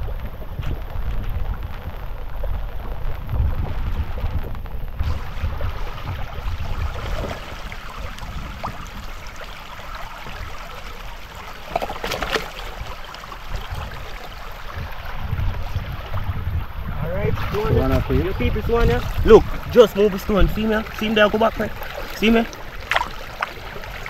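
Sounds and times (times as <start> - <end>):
stream running over rocks: 0.0 - 24.0
water splashing as stones shift: 5.0 - 16.5, 17.3 - 24.0.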